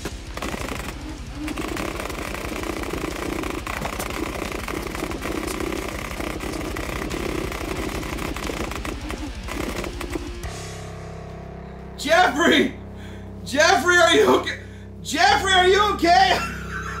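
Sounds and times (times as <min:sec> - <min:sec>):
toy blaster motor buzz: 0:00.0 - 0:10.5.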